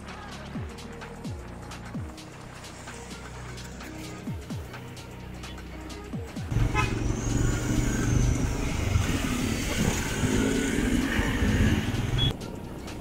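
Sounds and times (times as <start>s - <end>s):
motorcycle engines running: 6.5s - 12.3s
wind rushing on microphone: 8.2s - 12.2s.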